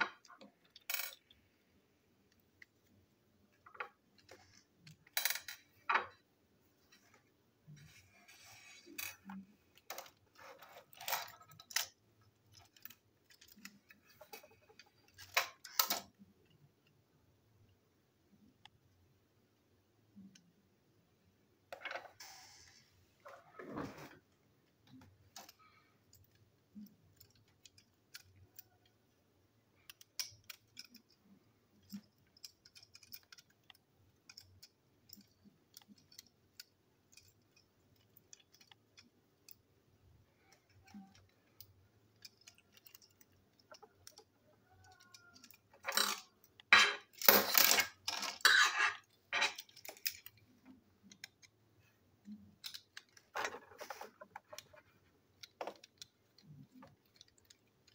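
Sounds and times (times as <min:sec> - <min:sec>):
plastic toy parts clicking: 0:00.0 - 0:01.5, 0:08.8 - 0:17.0, 0:24.6 - 0:57.9
handling noise on tabletop: 0:21.7 - 0:24.4, 0:52.6 - 0:57.6.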